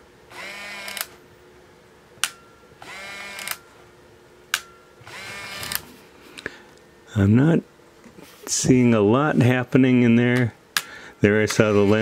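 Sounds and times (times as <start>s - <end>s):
camera film winder whine: 0.3s - 1.2s, 2.8s - 3.6s, 5.0s - 5.9s.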